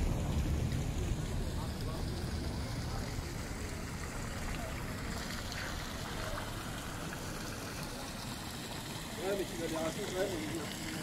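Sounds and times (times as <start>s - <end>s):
low background rumble: 0.0s - 6.9s
fountain water splashing: 0.0s - 11.0s.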